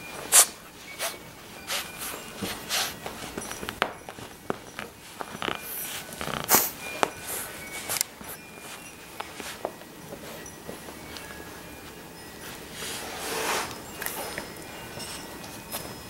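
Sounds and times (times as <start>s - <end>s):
puppy sniffing and snorting: 0.2s - 3.8s, 4.9s - 8.0s, 12.6s - 14.4s.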